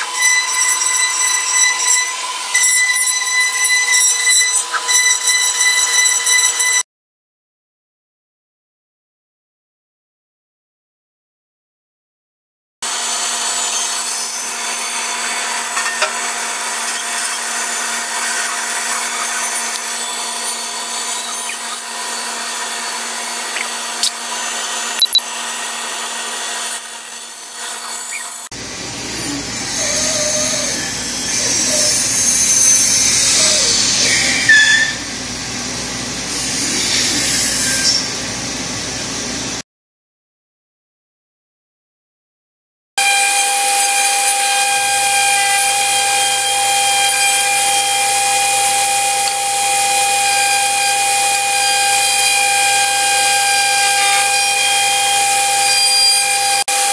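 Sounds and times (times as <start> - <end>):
bandsaw cutting wood: 12.8 - 35.0, 43.0 - 56.9.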